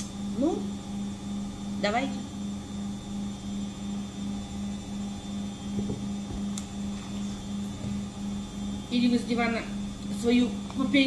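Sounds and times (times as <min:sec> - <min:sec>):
faint high whine: 0:00.0 - 0:11.0
pulsing low electrical hum: 0:00.0 - 0:11.0.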